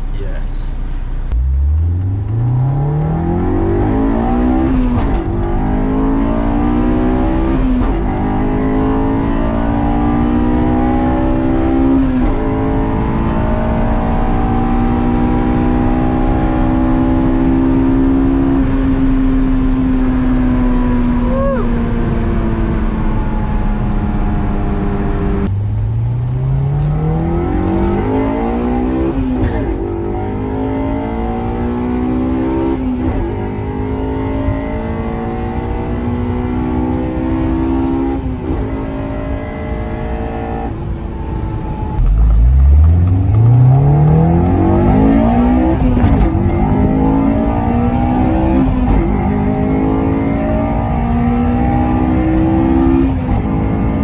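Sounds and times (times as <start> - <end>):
car engine revving through gears: 1.3 - 54.0.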